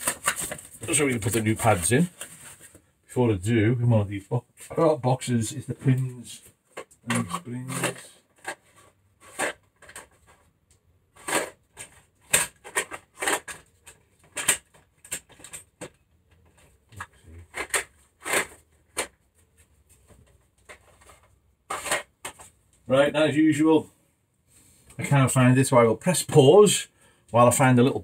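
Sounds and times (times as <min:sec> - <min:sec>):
parts clicking and clattering: 0:06.6 - 0:22.8.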